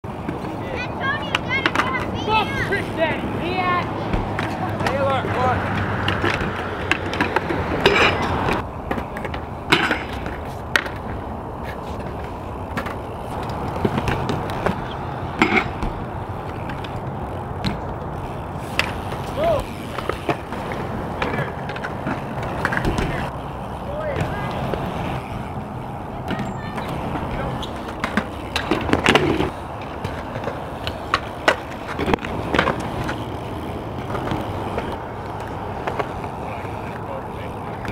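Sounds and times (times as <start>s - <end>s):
bike tyres rolling on concrete: 0.0s - 37.9s
bike landing knocks: 4.0s - 11.2s, 12.0s - 25.5s.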